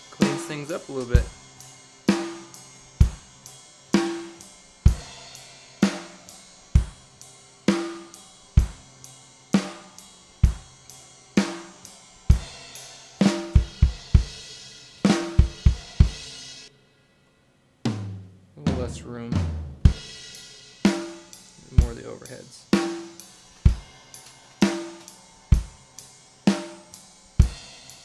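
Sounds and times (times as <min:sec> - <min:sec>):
drum kit playing: 0:00.0 - 0:16.7, 0:17.8 - 0:28.0
hi-hat and cymbals: 0:00.0 - 0:16.8, 0:18.7 - 0:28.0
tom fill: 0:17.8 - 0:25.7.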